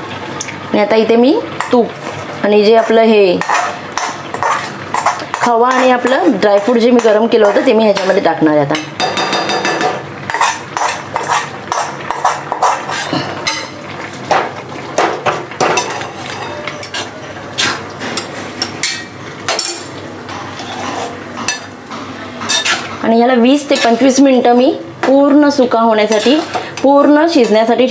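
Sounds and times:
metal spatula scraping metal pan: 2.8s - 8.2s, 10.3s - 13.7s, 15.8s - 19.0s, 20.3s - 21.7s, 22.4s - 22.9s, 23.6s - 24.2s.

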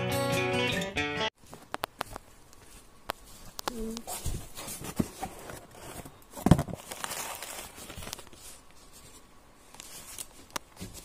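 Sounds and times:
plastic wrap and cardboard rustling: 1.4s - 11.0s.

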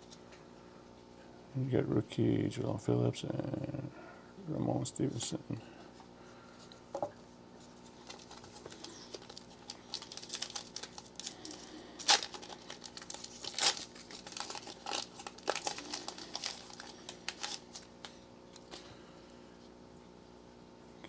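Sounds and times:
foil wrapper crinkling: 7.6s - 18.9s
foil wrapper ripping: 7.8s - 18.8s.

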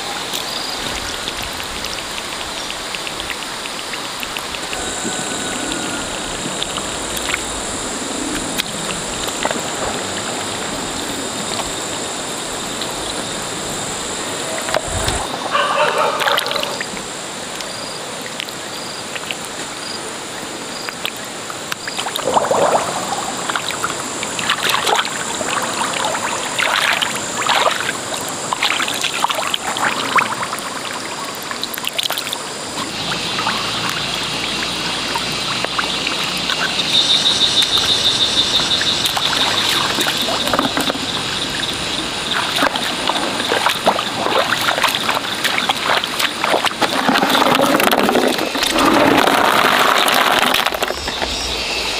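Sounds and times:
water splashing and trickling: 0.0s - 51.9s
wet mud squelching: 21.8s - 51.5s.

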